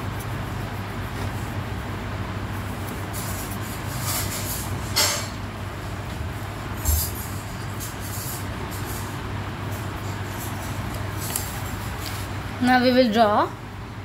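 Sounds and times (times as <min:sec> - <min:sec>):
crayon rubbing on paper: 0:00.0 - 0:04.7
scratchy crayon strokes: 0:00.0 - 0:04.7
steady low hum: 0:00.0 - 0:14.0.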